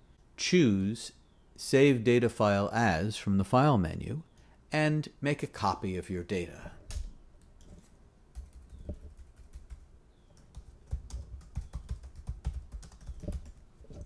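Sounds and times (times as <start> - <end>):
computer keyboard typing: 8.3 - 14.0.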